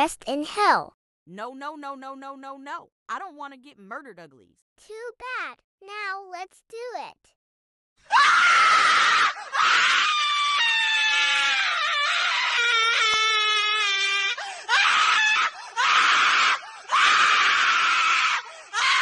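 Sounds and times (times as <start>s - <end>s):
high loud screaming: 8.1s - 19.0s.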